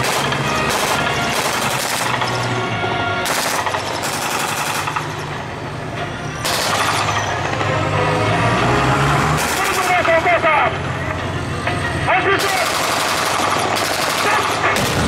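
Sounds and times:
automatic gunfire: 0:00.0 - 0:02.4, 0:03.3 - 0:05.0, 0:09.4 - 0:10.1, 0:12.4 - 0:15.0
vehicle engines droning: 0:00.0 - 0:15.0.

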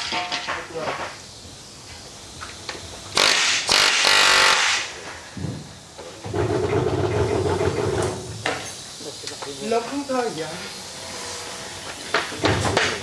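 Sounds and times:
loud hissing burst: 0:00.0 - 0:13.0
power tool motor running: 0:03.1 - 0:05.0.

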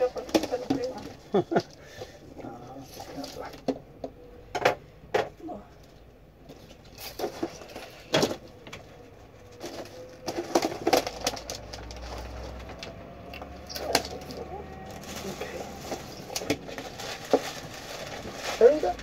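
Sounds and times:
household items knocking and clinking: 0:09.7 - 0:12.0.

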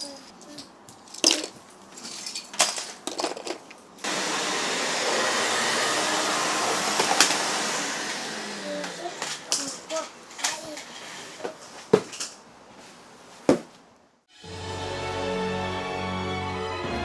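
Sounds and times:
plastic toy blocks clattering: 0:00.0 - 0:03.8, 0:09.2 - 0:12.4
vacuum cleaner running: 0:04.0 - 0:10.0.

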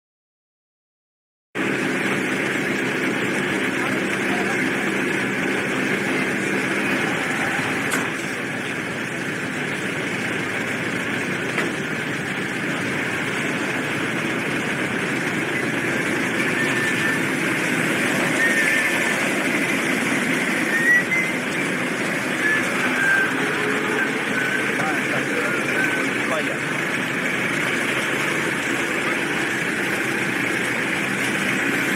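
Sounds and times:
rumble of engines and traffic: 0:01.6 - 0:31.9.

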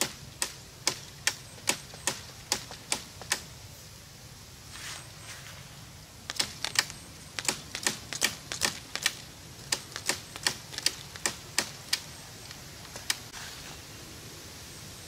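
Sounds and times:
pruning shears snipping: 0:06.3 - 0:13.4.

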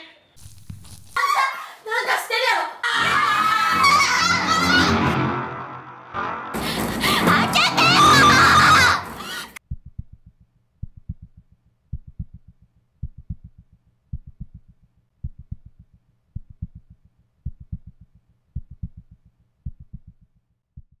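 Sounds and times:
low heartbeat-like thumps: 0:09.6 - 0:21.0.

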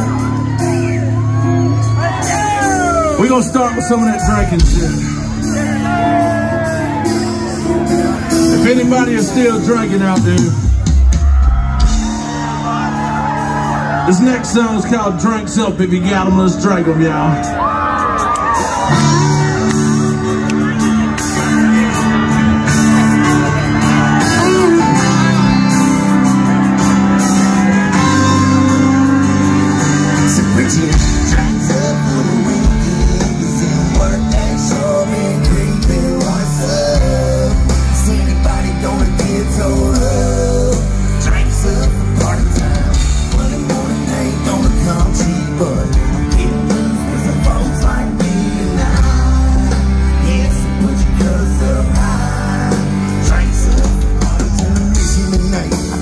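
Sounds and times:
heavy bass and drum beat: 0:00.0 - 0:56.0
live band through loud pa: 0:00.0 - 0:56.0
person singing lead vocal: 0:27.2 - 0:56.0.

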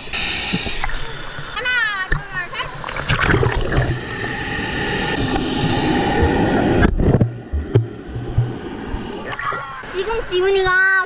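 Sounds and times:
pool water sloshing and gurgling: 0:02.2 - 0:04.5, 0:05.2 - 0:09.9.

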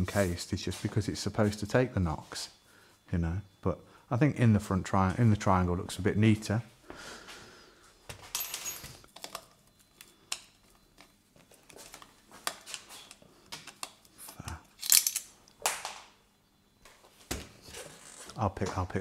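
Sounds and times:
hands clicking and knocking parts: 0:08.1 - 0:16.0.

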